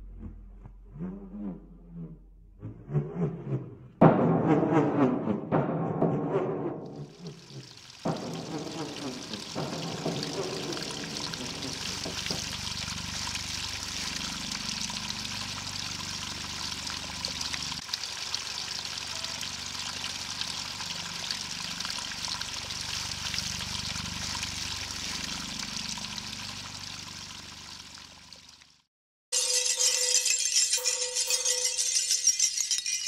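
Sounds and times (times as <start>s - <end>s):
stream trickling over stones: 7.0s - 28.9s
low musical drone: 8.1s - 17.8s.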